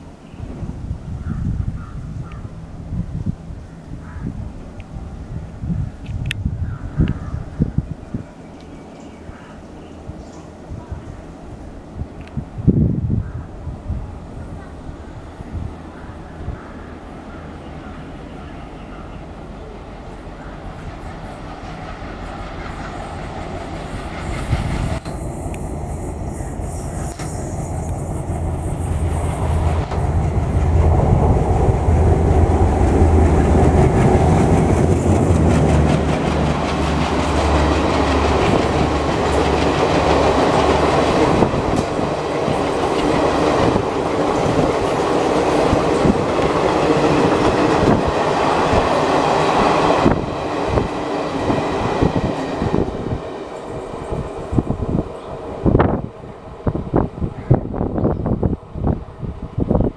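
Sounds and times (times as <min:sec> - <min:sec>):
diesel locomotive engine drone: 0:00.0 - 0:59.9
train wheels clacking over rail joints: 0:32.2 - 0:52.4.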